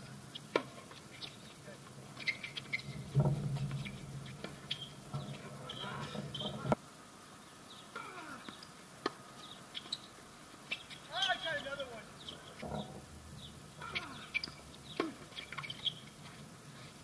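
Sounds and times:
low hum: 1.9s - 6.8s
faint bird chirps: 2.2s - 3.1s, 4.6s - 6.7s, 9.4s - 16.2s.

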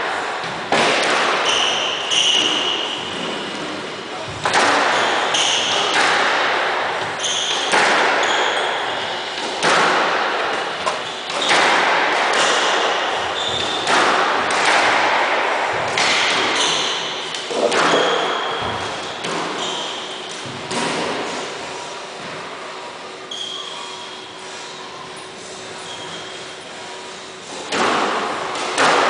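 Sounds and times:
squash ball hits echoing: 0.0s - 21.3s, 27.6s - 29.0s.

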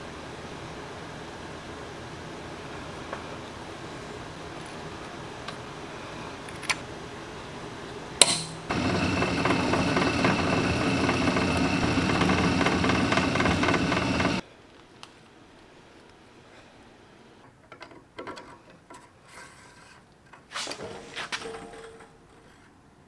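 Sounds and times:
drill press drilling metal: 8.7s - 14.4s.

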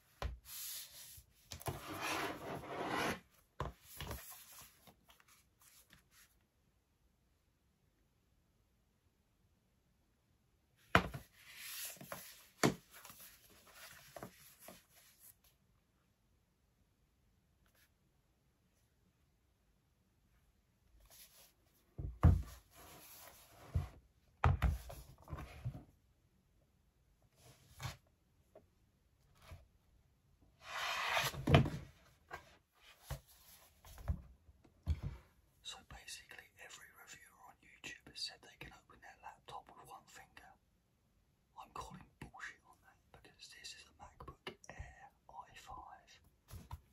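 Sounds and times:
rubbing and scraping: 0.6s - 3.2s.

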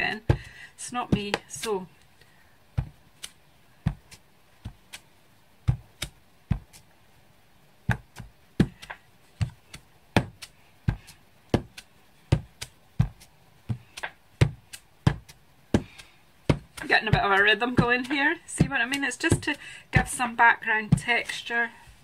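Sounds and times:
stamp knocking on card: 10.2s - 20.2s.

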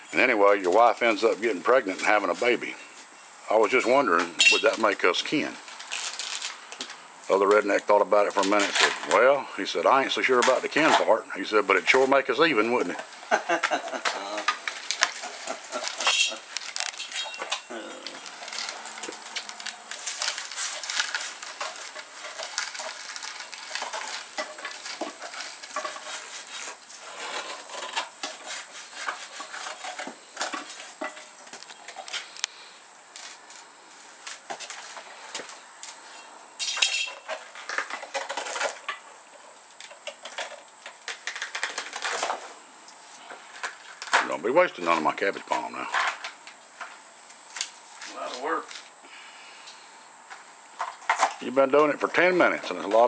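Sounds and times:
palm layers cracking and tearing: 5.6s - 7.0s, 13.6s - 17.0s, 17.8s - 27.9s, 40.8s - 42.2s.

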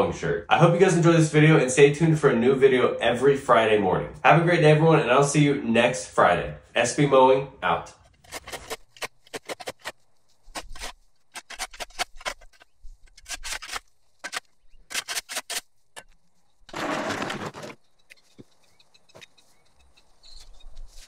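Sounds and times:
shovel scraping concrete: 8.2s - 9.9s, 16.7s - 17.8s.

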